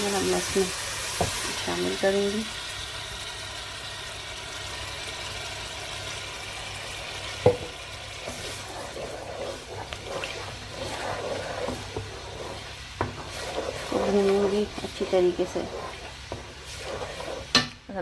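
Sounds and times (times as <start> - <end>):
masala sizzling in oil: 0.0 - 18.0
wooden spatula scraping pan: 8.2 - 17.8.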